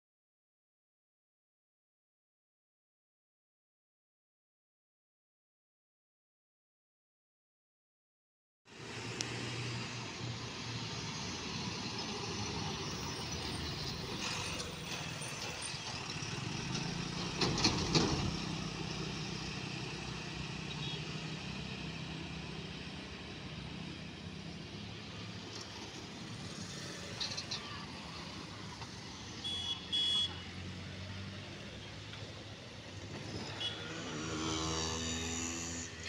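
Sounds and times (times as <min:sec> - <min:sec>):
motorbikes passing: 0:08.8 - 0:36.0
truck diesel engine: 0:10.1 - 0:34.2
car passing: 0:23.8 - 0:36.0.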